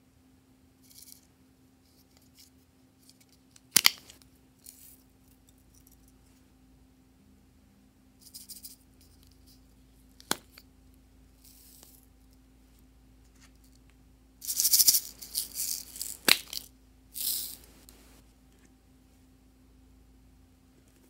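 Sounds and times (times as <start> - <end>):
plastic beads rattling into glass bowl: 14.4 - 17.6.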